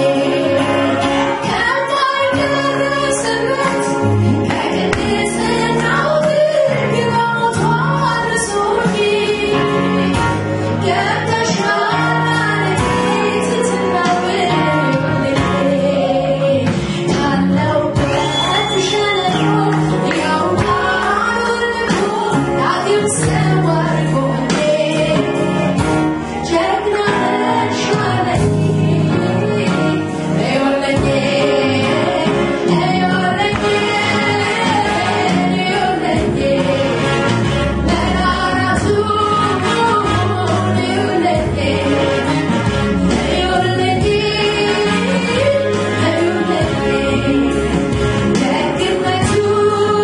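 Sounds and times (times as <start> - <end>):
woman singing into microphone: 0.0 - 10.2, 10.8 - 25.7, 26.3 - 37.0, 37.9 - 42.5, 43.1 - 50.0
live band with drums: 0.0 - 50.0.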